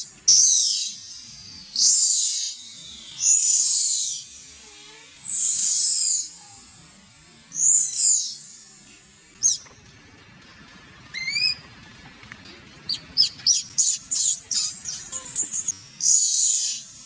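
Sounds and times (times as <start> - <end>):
young monkey screaming: 11.1 - 11.6, 12.9 - 16.9.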